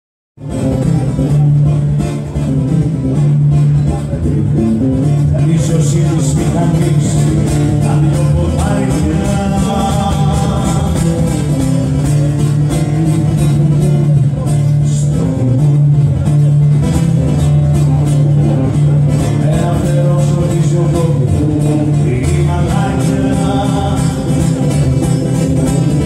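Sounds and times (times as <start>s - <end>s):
acoustic guitar: 0.4s - 26.0s
man singing into a microphone: 4.0s - 16.3s, 19.0s - 24.8s.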